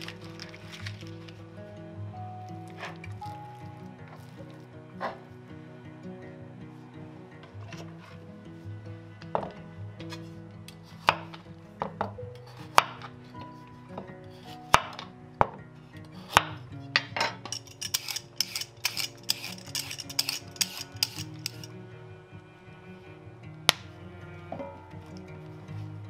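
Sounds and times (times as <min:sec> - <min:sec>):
vegetable peeler rasping: 0:17.6 - 0:21.7.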